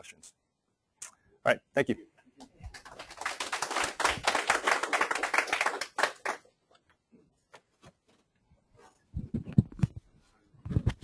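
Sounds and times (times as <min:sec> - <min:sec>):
audience applauding: 0:02.7 - 0:06.5.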